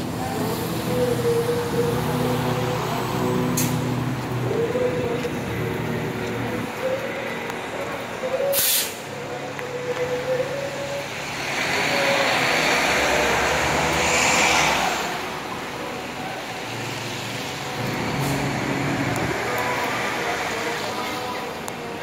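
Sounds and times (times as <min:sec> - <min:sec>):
short hiss: 0:08.5 - 0:09.0
vehicle passing: 0:11.2 - 0:15.5.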